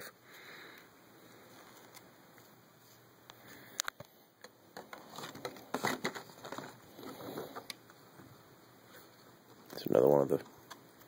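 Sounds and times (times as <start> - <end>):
plastic parts clicking and scuffing: 4.8 - 7.8.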